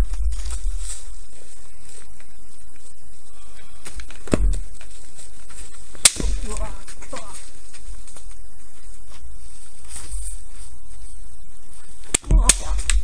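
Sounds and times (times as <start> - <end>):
bamboo swords cracking: 5.9 - 7.3, 12.0 - 13.0.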